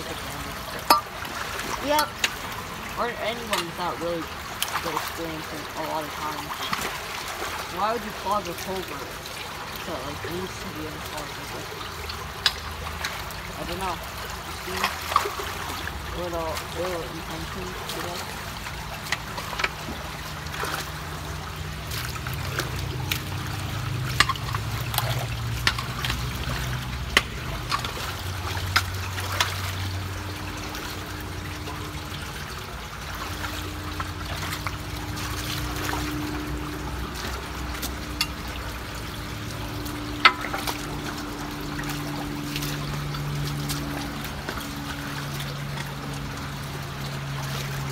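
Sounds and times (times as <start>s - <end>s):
water trickling and flowing: 0.0s - 47.9s
sharp clicks and knocks of debris: 18.6s - 31.1s.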